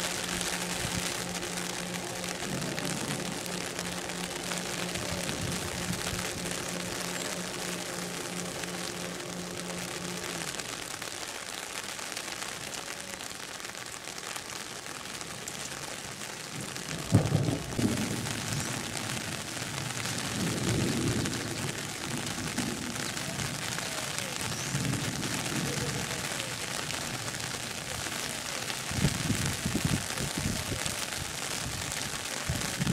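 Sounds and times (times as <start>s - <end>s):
low rumble: 0.0s - 11.0s
rain falling: 0.0s - 32.9s.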